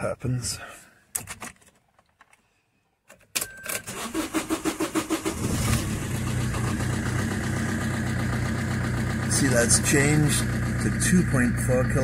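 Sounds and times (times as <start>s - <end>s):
starter motor cranking engine: 3.8s - 12.0s
diesel engine idling: 5.3s - 12.0s.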